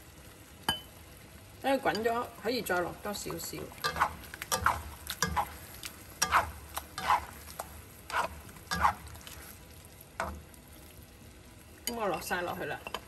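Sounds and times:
spatula scraping pan: 0:03.7 - 0:09.6.

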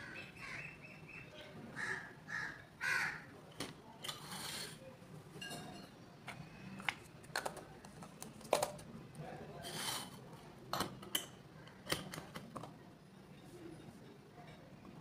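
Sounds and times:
bird calling: 0:00.0 - 0:03.2.

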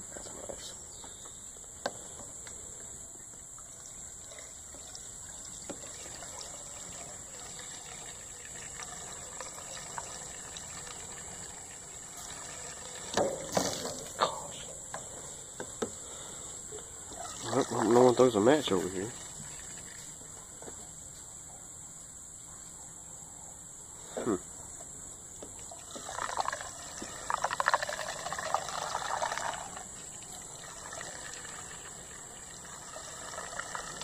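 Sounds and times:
liquid pouring from plastic can: 0:03.7 - 0:14.2, 0:17.1 - 0:18.1, 0:19.0 - 0:20.2, 0:25.7 - 0:34.0.

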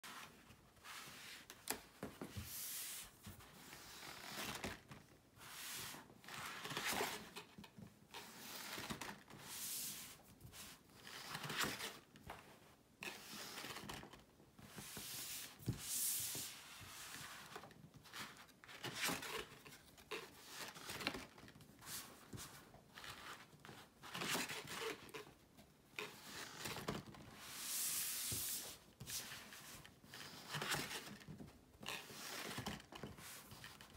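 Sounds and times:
paper rustling and sliding: 0:00.0 - 0:07.5, 0:13.0 - 0:25.2, 0:26.0 - 0:31.3.

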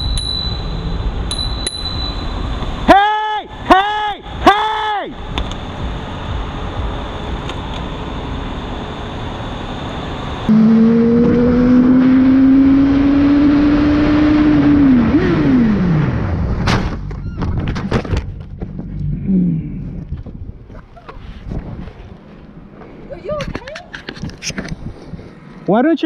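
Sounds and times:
motorcycle engine accelerating: 0:10.4 - 0:20.5
wind noise on helmet: 0:19.8 - 0:22.2, 0:23.3 - 0:25.5.

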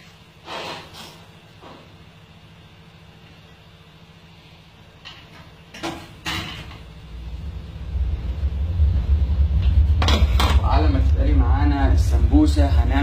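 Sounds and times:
kitchen knocks and clatters: 0:05.0 - 0:06.9
low rumble: 0:06.7 - 0:13.0.

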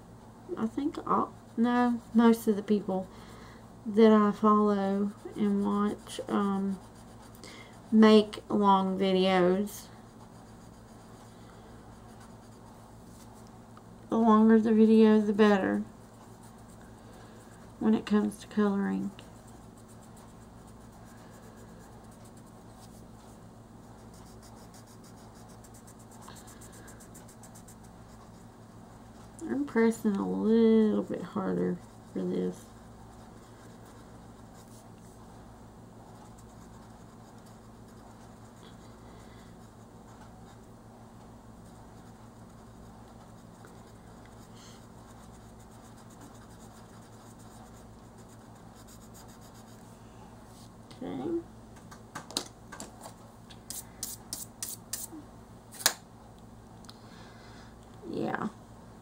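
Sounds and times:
low steady hum: 0:00.0 - 0:59.0
colored pencil scratching on paper: 0:00.6 - 0:03.1, 0:04.0 - 0:13.4, 0:14.2 - 0:35.2, 0:36.1 - 0:40.7, 0:41.6 - 0:49.9.

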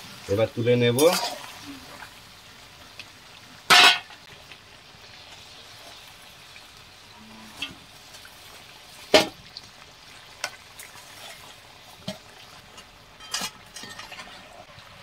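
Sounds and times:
chicken sizzling in hot oil: 0:00.0 - 0:15.0
steel ladle scraping a pan: 0:07.5 - 0:07.8, 0:11.0 - 0:14.7.

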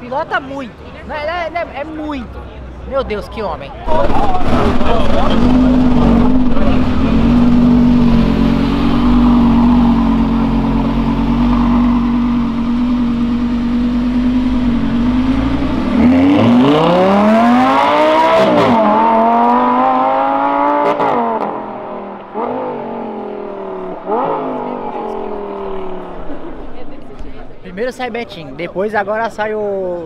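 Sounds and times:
sports car engine accelerating: 0:03.9 - 0:27.5.

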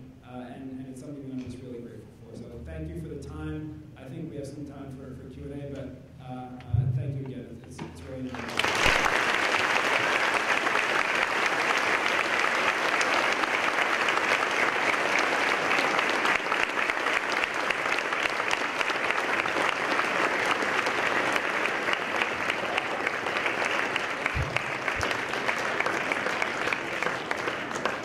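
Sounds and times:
audience applauding: 0:08.3 - 0:28.0.

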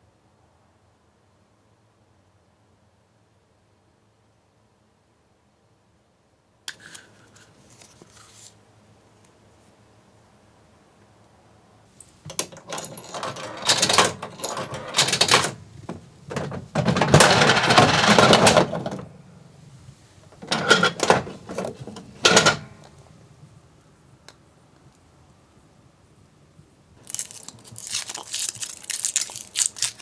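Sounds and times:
crank handle clicking and rattling: 0:12.3 - 0:15.6, 0:16.3 - 0:19.1.

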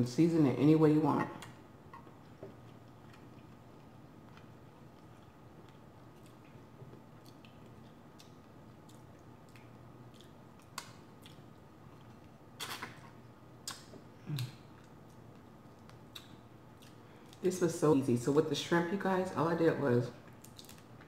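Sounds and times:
chewing with wet mouth clicks: 0:01.4 - 0:12.4, 0:13.6 - 0:17.4, 0:20.2 - 0:21.0.

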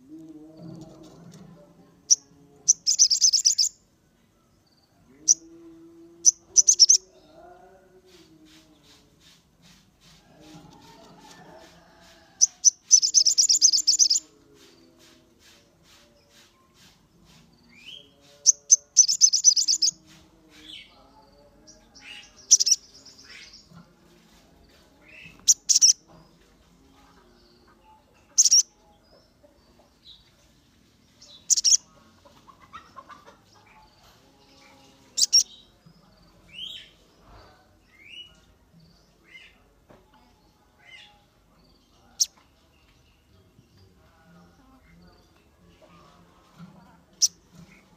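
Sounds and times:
bird chattering: 0:02.7 - 0:03.7, 0:06.3 - 0:07.1, 0:12.4 - 0:14.2, 0:18.5 - 0:19.9, 0:22.5 - 0:22.8, 0:25.4 - 0:26.0, 0:28.4 - 0:28.6, 0:31.5 - 0:31.8, 0:35.2 - 0:35.4
sunbird chirping: 0:02.7 - 0:03.8, 0:06.1 - 0:07.1, 0:12.5 - 0:14.9, 0:17.9 - 0:19.9, 0:22.2 - 0:23.5, 0:28.4 - 0:28.6, 0:31.3 - 0:31.8, 0:35.2 - 0:35.5.

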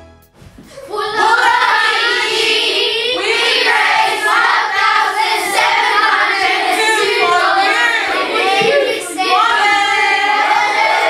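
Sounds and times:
background music: 0:00.0 - 0:00.4
children singing in unison: 0:00.8 - 0:11.0.

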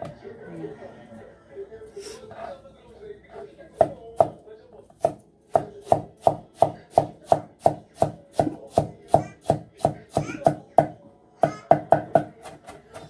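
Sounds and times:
knife chopping on wooden board: 0:05.0 - 0:13.0.

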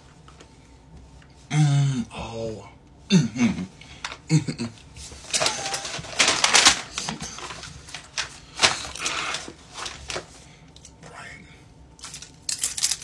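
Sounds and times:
paper bag crinkling: 0:05.0 - 0:10.4.

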